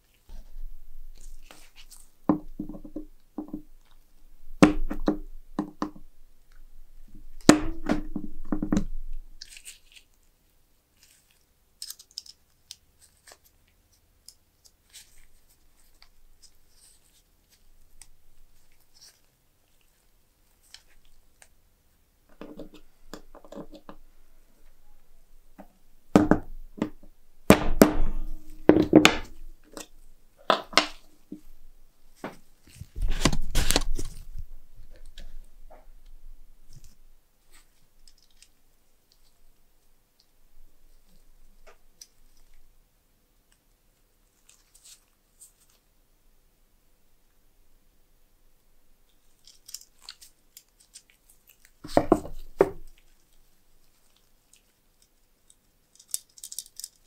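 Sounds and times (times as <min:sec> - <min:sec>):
small objects knocking and clicking: 0:00.3 - 0:09.7, 0:22.3 - 0:24.0, 0:25.6 - 0:31.5, 0:54.6 - 0:57.0.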